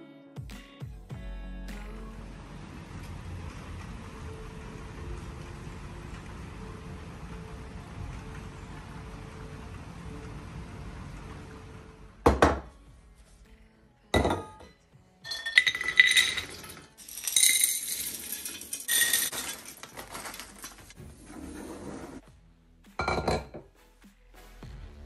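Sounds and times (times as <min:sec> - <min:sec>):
clinks of glass and metal: 0:14.2 - 0:19.7, 0:23.0 - 0:23.6
nuts rattling into metal bowls: 0:15.3 - 0:21.0.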